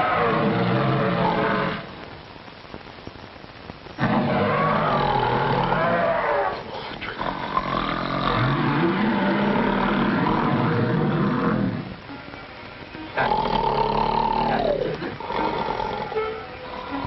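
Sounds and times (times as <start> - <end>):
elephant trumpeting and rumbling: 4.0 - 12.0.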